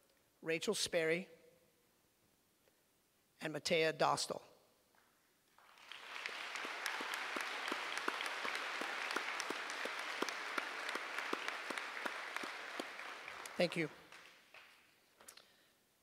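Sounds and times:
crowd applauding: 5.6s - 14.9s.

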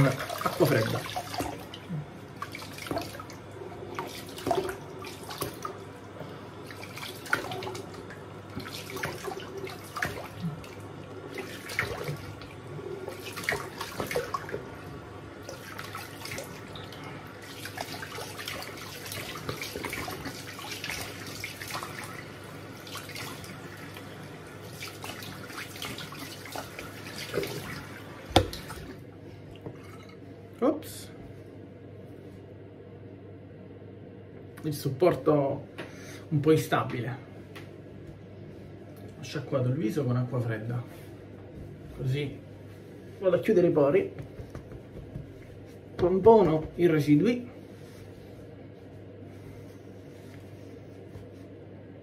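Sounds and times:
water splashing on face: 6.6s - 14.8s, 15.4s - 29.0s
tap running into sink: 28.3s - 28.8s, 44.2s - 45.4s.

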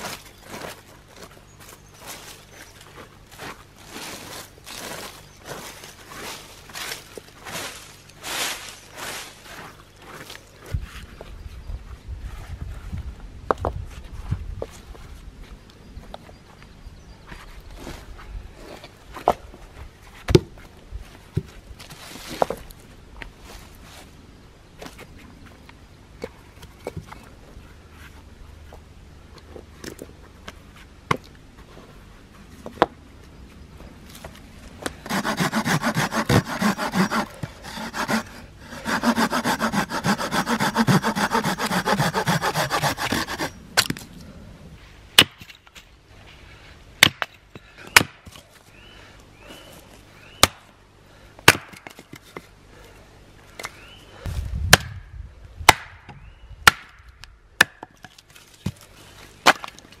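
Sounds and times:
hand saw cutting wood: 35.0s - 43.6s
axe chopping wood: 35.0s - 44.0s, 45.2s - 45.5s, 47.0s - 48.4s, 50.4s - 50.6s, 51.4s - 52.1s, 55.6s - 58.8s, 59.4s - 59.8s.

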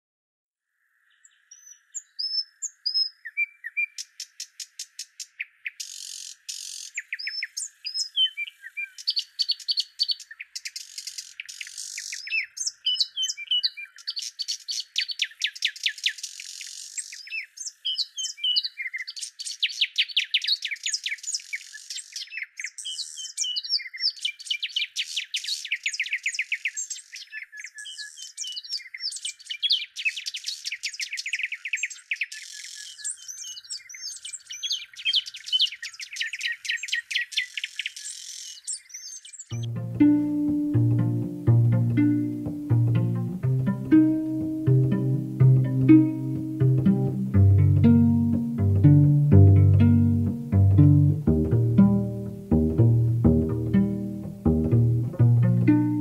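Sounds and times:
songbirds chirping and trilling: 0.8s - 56.0s
faint steady hiss: 39.5s - 56.0s.

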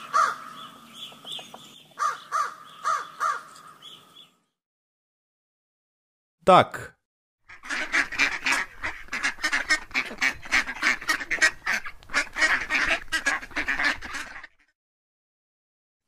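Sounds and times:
ducks quacking rapidly: 7.5s - 14.7s.

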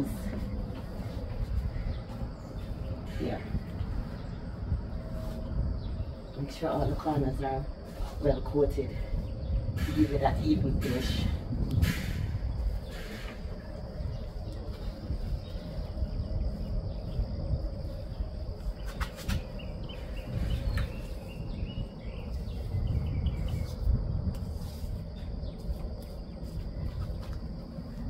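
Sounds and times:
low rumble on microphone: 0.0s - 28.0s.

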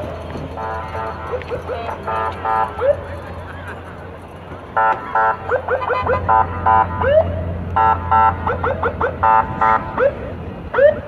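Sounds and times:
low engine hum: 0.0s - 11.0s
vehicle horns honking: 0.4s - 4.0s, 4.7s - 8.6s, 9.2s - 10.3s.

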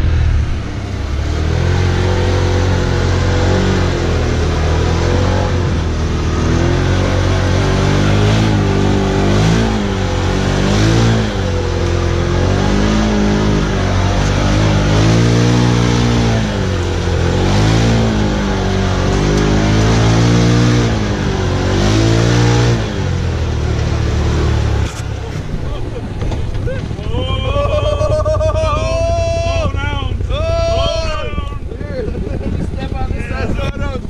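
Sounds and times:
engine revving hard: 0.0s - 25.0s.

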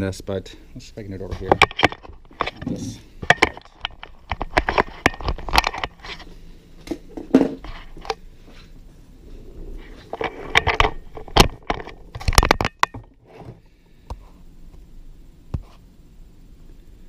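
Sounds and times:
tools handled on workbench: 1.3s - 8.2s.

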